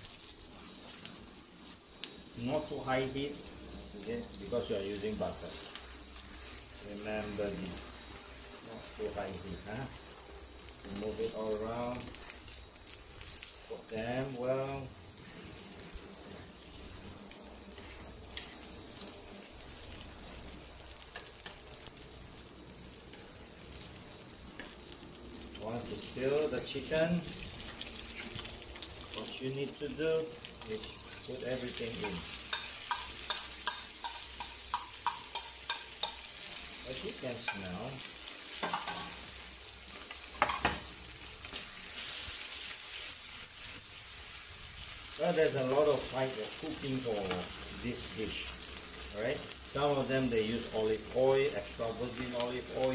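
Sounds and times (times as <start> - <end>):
meat sizzling in a frying pan: 0.0 - 52.9
utensil clicking against pan: 32.0 - 36.3.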